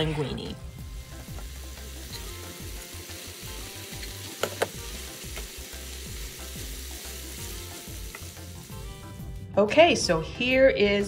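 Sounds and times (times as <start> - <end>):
food sizzling in a skillet: 0.8 - 9.2.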